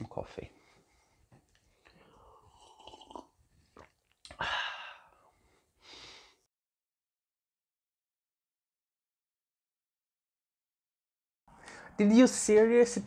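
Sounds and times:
person slurping coffee: 2.4 - 4.0
loud breathy sigh: 4.3 - 6.5
short breath: 4.4 - 6.5.

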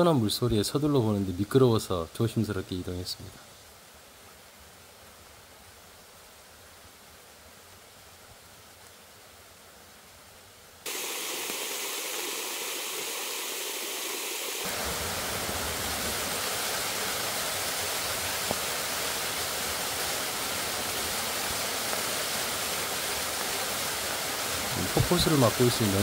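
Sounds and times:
waterfall rushing: 10.9 - 26.0.

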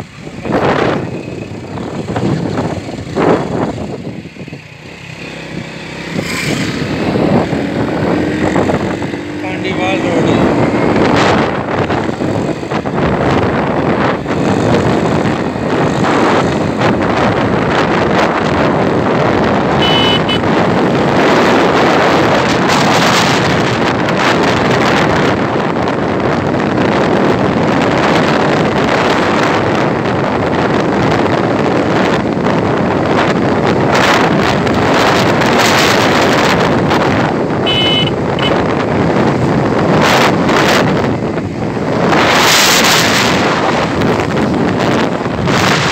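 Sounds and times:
motorcycle engine and road noise: 0.0 - 45.9
wind rushing over microphone: 0.0 - 45.9
short high beep: 19.8 - 20.4, 37.7 - 38.6.

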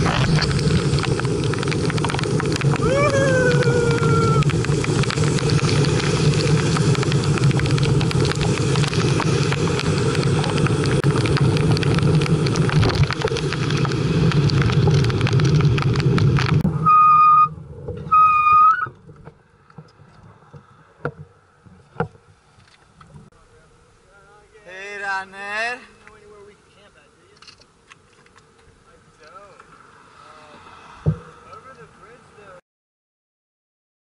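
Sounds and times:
heavy rain: 0.0 - 16.6
tyres hissing on wet road: 0.0 - 16.6, 29.4 - 32.6.

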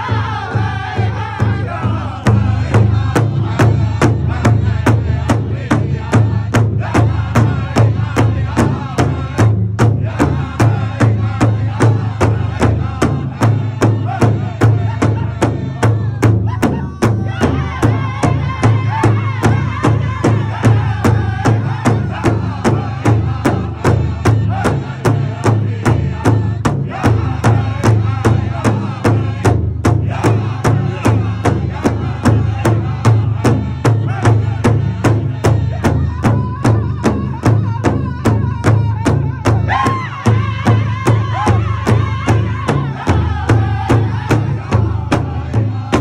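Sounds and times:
large drum beating: 0.0 - 46.0
men and women singing: 0.0 - 46.0.

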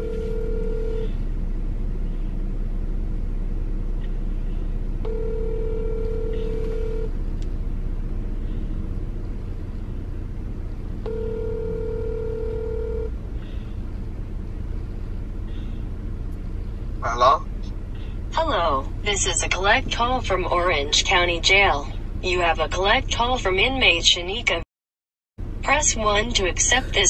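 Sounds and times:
telephone ringback tone: 0.0 - 1.1, 5.1 - 7.1, 11.1 - 13.1
low steady rumble: 0.0 - 24.6, 25.4 - 27.0.

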